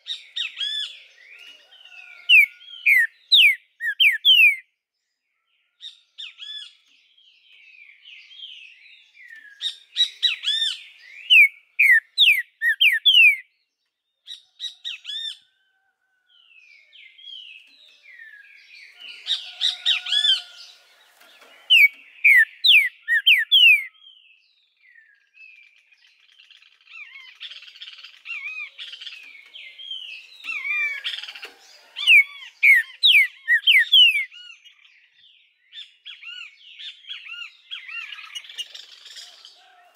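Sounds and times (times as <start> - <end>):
bird singing slurred whistles: 2.8 - 4.6, 9.3 - 13.5, 21.7 - 24.3, 32.0 - 34.5.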